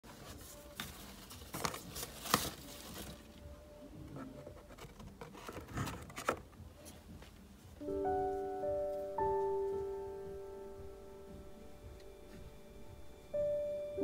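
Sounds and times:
calendar pages rustling: 0.0 - 3.4, 4.2 - 7.0.

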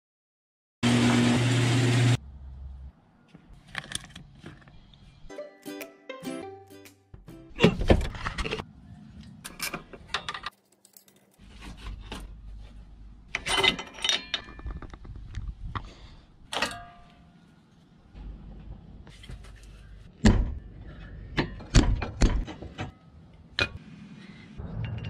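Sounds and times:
metal tools clicking and clanking: 13.3 - 15.1, 16.5 - 17.2.

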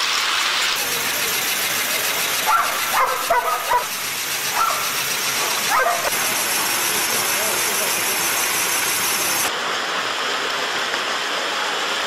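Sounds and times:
treadmills running: 0.8 - 9.5
dogs yipping and whining: 2.5 - 6.2.

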